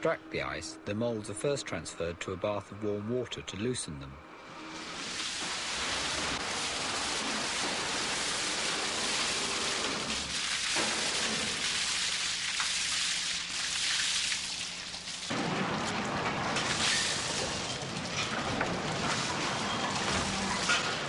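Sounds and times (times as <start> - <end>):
water splashing and running: 4.8 - 16.0.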